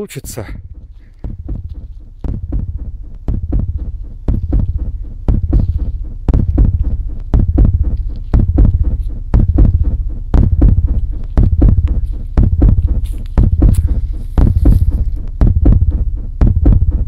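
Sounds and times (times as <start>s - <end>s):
crackling underfoot: 0.3s - 17.0s
footsteps on forest floor: 11.0s - 15.2s.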